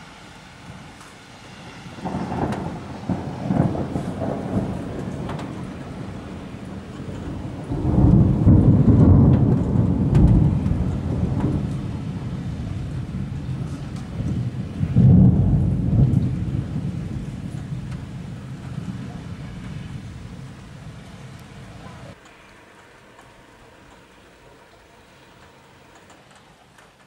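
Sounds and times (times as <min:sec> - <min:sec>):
thunder rolling: 0:01.6 - 0:22.2.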